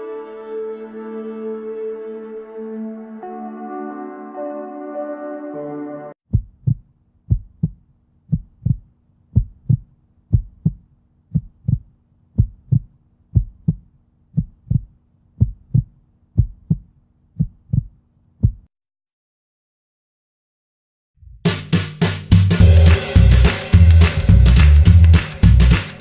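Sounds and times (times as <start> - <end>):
heartbeat thumps: 6.3 - 18.7.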